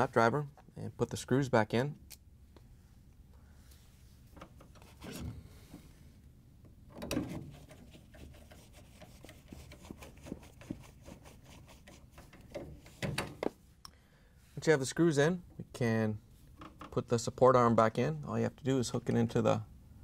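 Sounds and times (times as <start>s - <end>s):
tool and gloved hands scraping: 7.2s - 13.0s.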